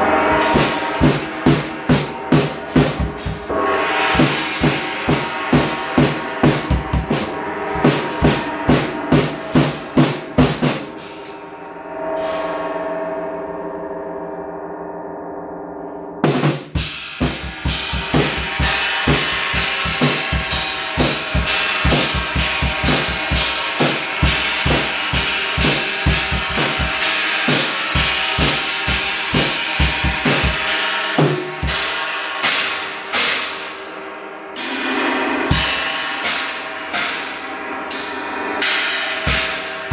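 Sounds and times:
drum kit with cymbals: 0.0s - 13.0s, 16.2s - 39.9s
gong ringing: 0.0s - 16.2s, 17.3s - 32.0s.

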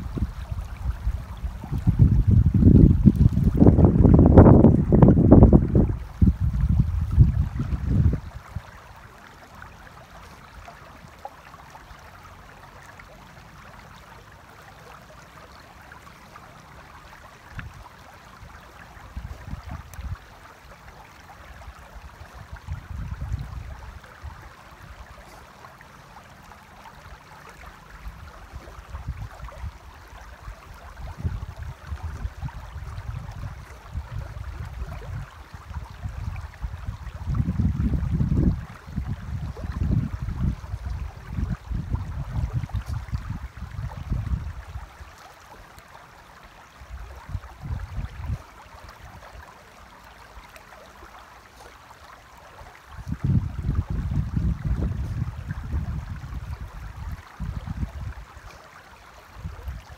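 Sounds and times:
wind buffeting microphone: 0.0s - 8.8s, 19.0s - 20.3s, 22.0s - 25.1s, 30.7s - 44.9s, 46.8s - 48.4s, 52.9s - 58.5s
river running over stones: 0.0s - 59.9s.

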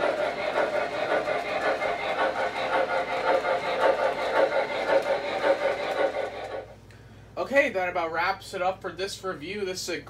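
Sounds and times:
model train cars rolling on track: 0.0s - 6.8s.

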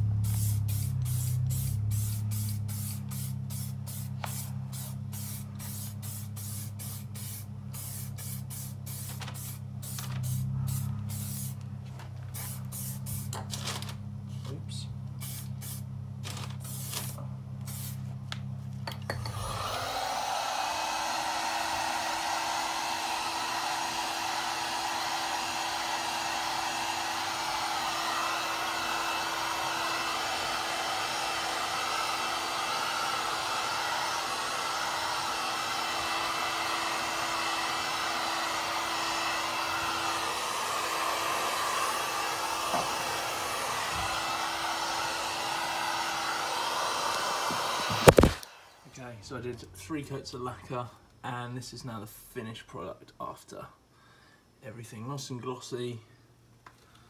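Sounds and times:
heat gun blowing: 0.0s - 11.7s, 12.3s - 13.5s, 15.1s - 18.1s, 18.8s - 48.9s
aerosol can hissing: 0.2s - 11.6s, 12.3s - 13.4s, 15.2s - 15.9s, 16.6s - 18.1s, 38.6s - 48.5s.

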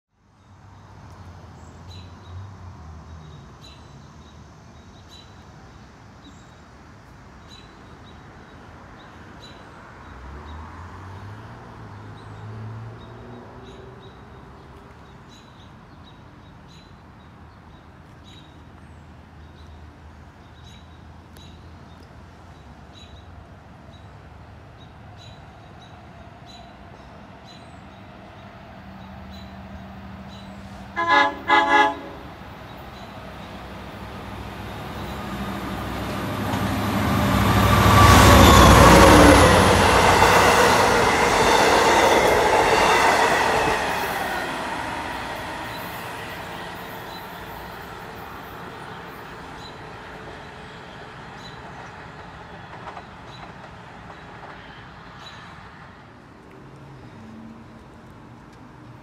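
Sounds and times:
distant traffic hum: 0.6s - 59.0s
vehicle engine passing: 33.6s - 48.4s.

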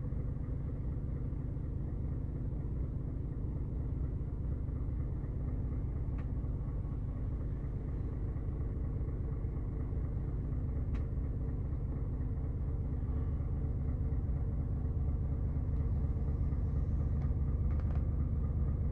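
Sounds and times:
diesel truck engine idling: 0.0s - 18.9s
faint click: 6.1s - 6.4s, 10.9s - 11.1s.

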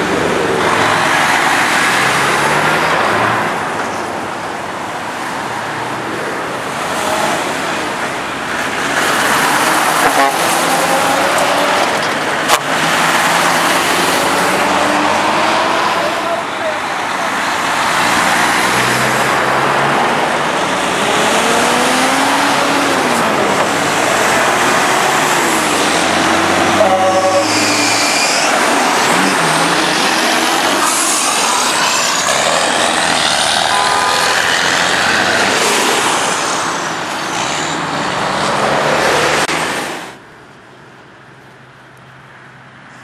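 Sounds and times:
truck horn blast: 10.0s - 11.2s, 26.8s - 27.8s, 33.6s - 34.5s.

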